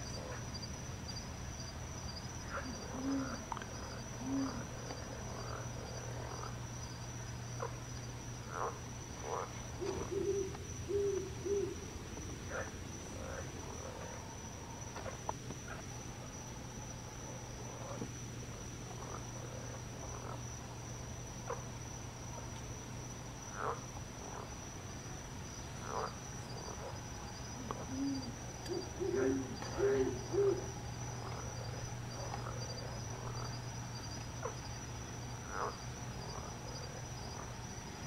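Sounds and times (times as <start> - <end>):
insects trilling: 0.0 - 38.0
low animal calls: 2.4 - 4.8, 8.5 - 11.8, 27.6 - 33.5.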